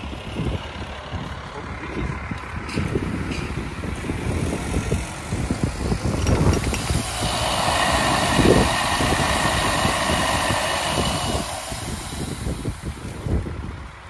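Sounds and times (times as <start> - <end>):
low rumble: 0.6 - 13.9
water spraying from hydrant: 2.9 - 14.0.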